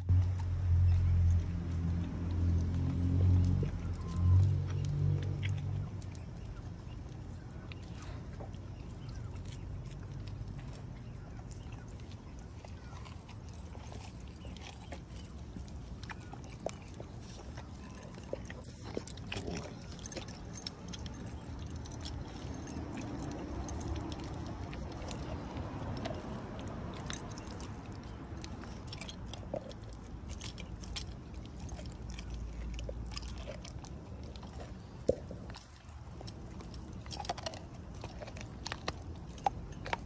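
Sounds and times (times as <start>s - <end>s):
dog gnawing a bone: 0.0s - 40.0s
metal chain jangling: 1.7s - 6.9s, 13.0s - 34.8s, 35.4s - 40.0s.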